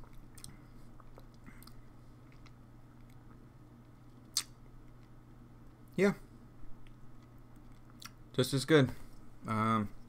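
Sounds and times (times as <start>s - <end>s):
lip smacking: 4.3s - 5.0s.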